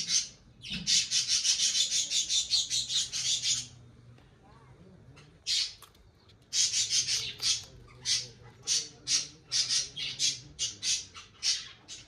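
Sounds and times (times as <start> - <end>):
guinea pig crunching vegetable: 5.4 - 8.9.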